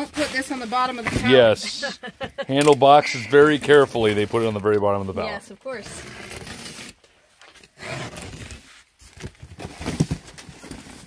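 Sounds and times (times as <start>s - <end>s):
cardboard and tape tearing: 5.3s - 7.0s, 7.6s - 11.0s.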